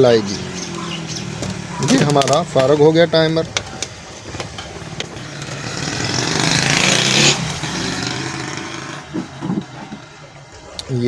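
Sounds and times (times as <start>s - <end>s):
vehicle engine passing by: 0.0s - 10.5s.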